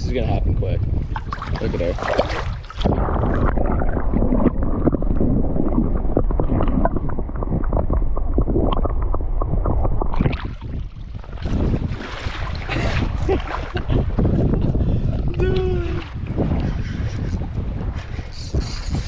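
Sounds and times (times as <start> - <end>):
water sloshing and gurgling: 0.0 - 19.0
water splash: 1.1 - 14.3
small crackles underwater: 2.7 - 11.4.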